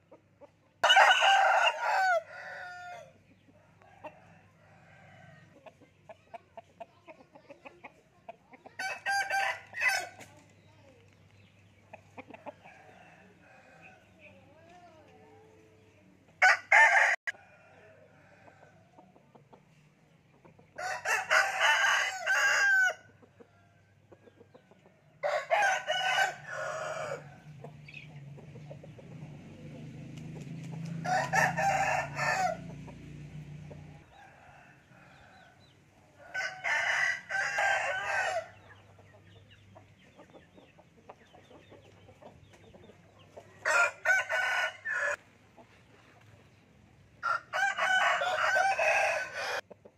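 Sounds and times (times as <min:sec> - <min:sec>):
roosters crowing: 0:00.8 - 0:05.6, 0:08.8 - 0:10.4, 0:16.4 - 0:18.9, 0:20.7 - 0:23.8, 0:25.0 - 0:28.0, 0:28.8 - 0:38.8, 0:43.5 - 0:45.2, 0:47.1 - 0:49.8.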